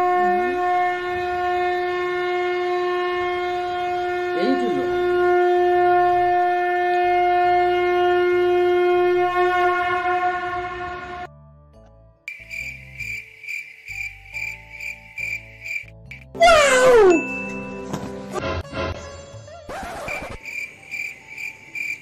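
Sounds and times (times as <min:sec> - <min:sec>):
conch shell blown: 0:00.0 - 0:11.3, 0:16.4 - 0:17.3.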